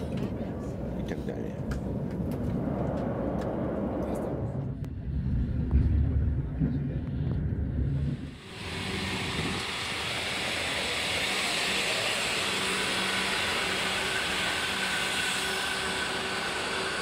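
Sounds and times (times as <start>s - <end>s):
train air system hiss: 8.4s - 17.0s.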